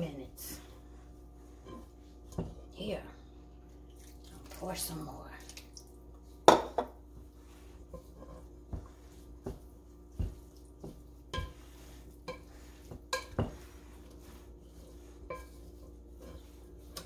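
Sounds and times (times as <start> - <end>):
spoon scraping wet crumbs: 7.4 - 17.0.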